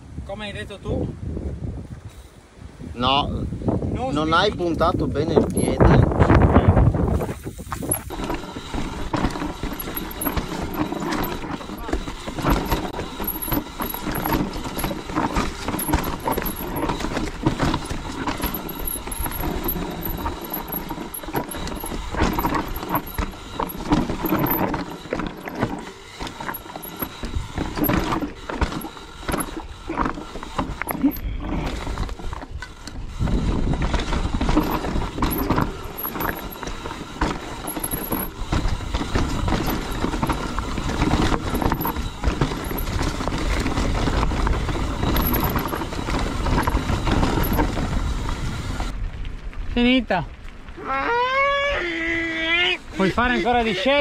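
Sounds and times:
low rumbling rush: 2.6 - 53.2
bike rattling over rocks: 4.1 - 50.8, 52.8 - 54.0.

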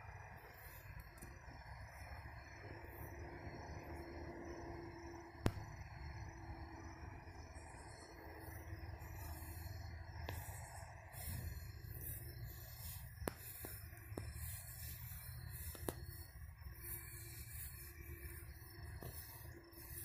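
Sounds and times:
footsteps swishing through grass: 10.4 - 20.0
sharp clicks: 13.1 - 16.4.

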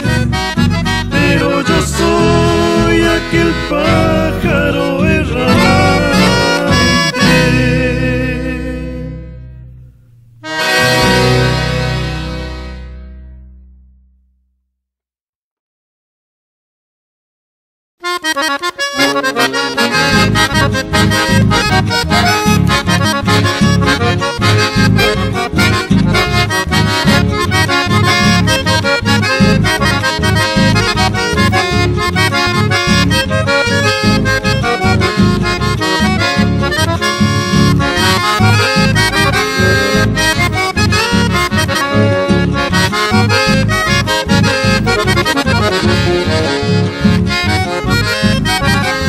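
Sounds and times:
accordion: 0.0 - 14.0, 18.0 - 49.0
pulsing bass beat: 20.2 - 46.3.

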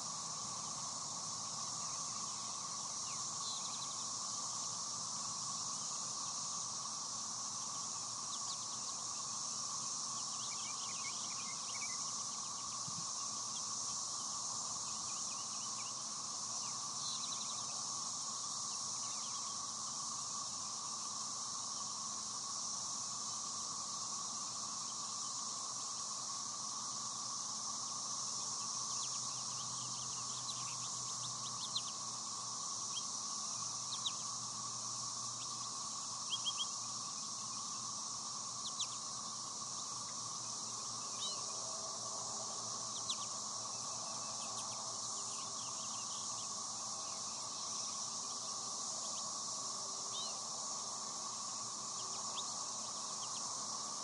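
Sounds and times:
insects droning: 0.0 - 54.0
finches chirping: 28.6 - 32.0, 32.8 - 34.4, 35.3 - 37.9, 38.6 - 39.2, 42.8 - 49.4, 50.1 - 50.4.

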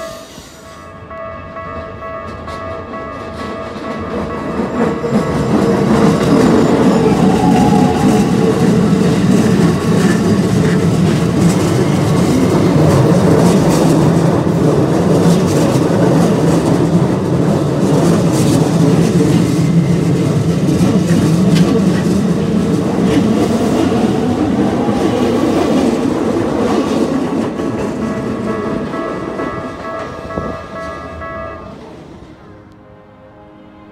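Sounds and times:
train wheels rumbling on rail: 0.0 - 32.5.

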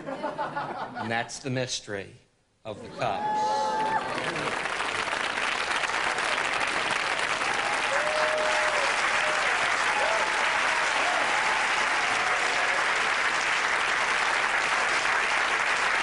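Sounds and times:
audience applauding: 3.6 - 16.0
voices among clapping: 3.8 - 16.0.

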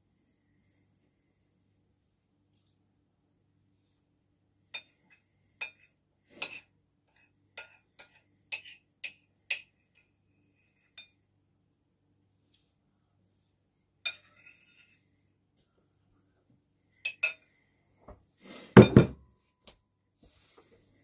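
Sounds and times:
metal spoon clinking on ceramic bowl: 5.6 - 10.1, 14.0 - 14.7, 17.0 - 17.4.

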